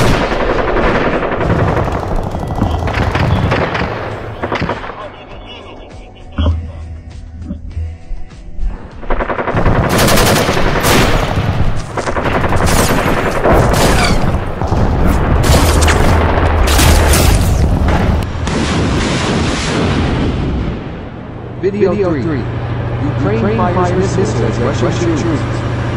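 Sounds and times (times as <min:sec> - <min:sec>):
rapid automatic gunfire: 0:00.0 - 0:05.2, 0:09.1 - 0:17.1.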